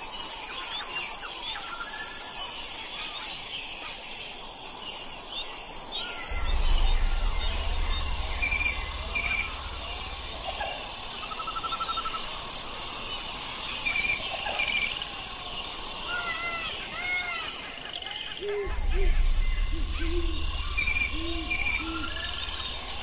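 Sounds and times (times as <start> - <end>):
insects droning: 0.0 - 23.0
birds chirping: 5.1 - 23.0
low rumble: 6.2 - 11.5, 18.6 - 23.0
bird trill: 16.1 - 23.0.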